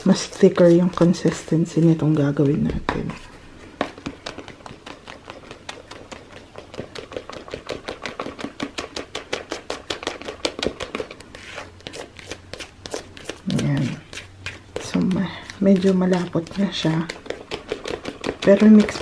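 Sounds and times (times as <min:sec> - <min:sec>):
spoon scraping plastic bowl: 0:00.0 - 0:19.0.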